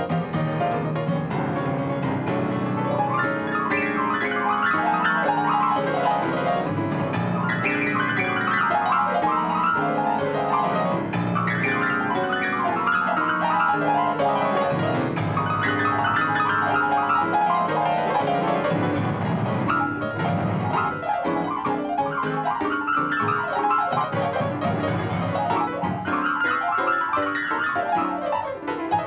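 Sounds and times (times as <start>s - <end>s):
grand piano fast run: 0.0s - 29.0s.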